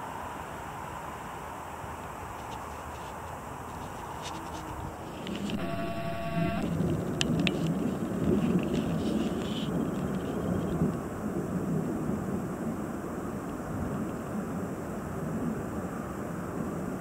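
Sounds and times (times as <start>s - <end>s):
buzzing tone: 5.5s - 6.7s.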